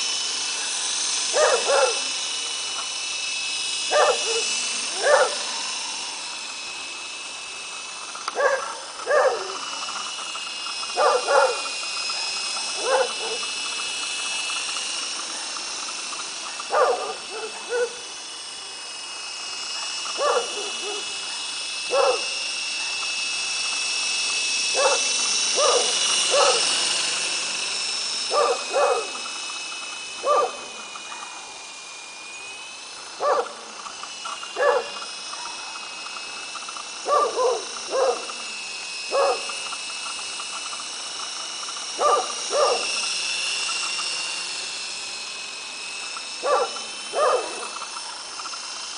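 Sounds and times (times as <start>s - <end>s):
rc helicopter rotors whining: 0.0s - 48.9s
dogs barking: 1.3s - 2.1s, 3.9s - 5.4s, 8.3s - 9.7s, 11.0s - 11.7s, 12.8s - 13.5s, 16.7s - 18.0s, 20.2s - 21.0s, 21.9s - 22.4s, 24.8s - 26.7s, 28.3s - 29.2s, 30.2s - 31.2s, 33.2s - 33.6s, 34.6s - 35.0s, 37.1s - 38.4s, 39.1s - 39.6s, 42.0s - 42.9s, 46.4s - 47.7s.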